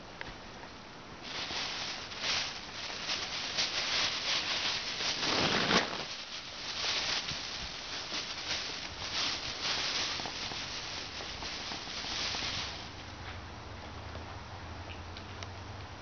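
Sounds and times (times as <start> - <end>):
plastic bags crinkling: 1.2 - 13.2.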